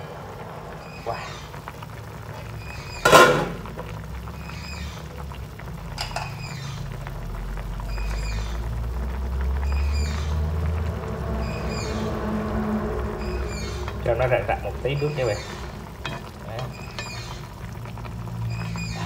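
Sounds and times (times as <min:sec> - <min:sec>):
sauce bubbling in a pan: 0:00.0 - 0:19.0
high falling chirp: 0:13.1 - 0:17.5.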